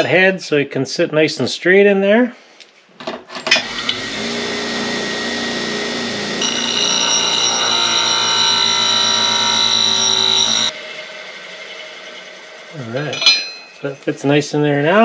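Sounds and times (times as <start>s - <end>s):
bench grinder grinding metal: 3.6s - 14.0s.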